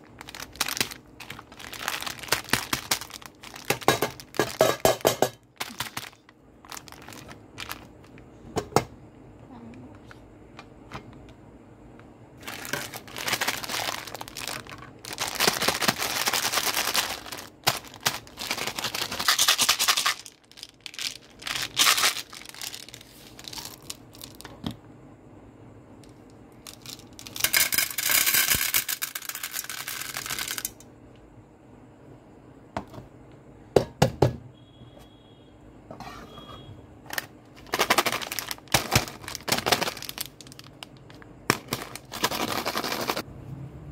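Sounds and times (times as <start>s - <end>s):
candies rattling into metal tin: 0.0s - 8.2s, 12.4s - 24.6s, 26.6s - 30.8s, 37.1s - 43.2s
plastic wrappers crinkling and tearing: 0.0s - 8.2s, 12.4s - 24.5s, 37.6s - 43.2s.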